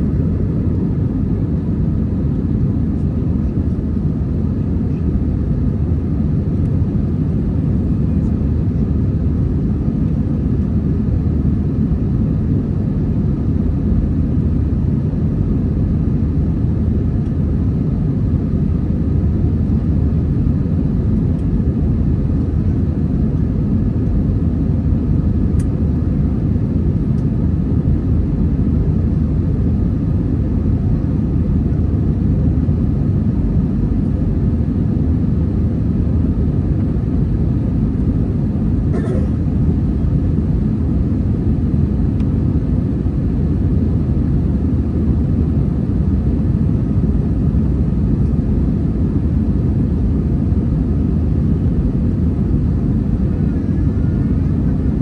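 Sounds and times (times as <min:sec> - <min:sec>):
jet engines rumbling: 0:00.0 - 0:55.0.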